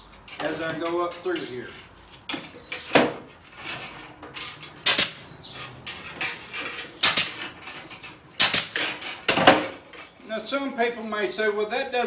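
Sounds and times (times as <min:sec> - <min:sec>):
wire rattling: 0:00.1 - 0:10.2
pneumatic ring gun firing: 0:04.8 - 0:05.3, 0:07.0 - 0:07.6, 0:08.4 - 0:09.7.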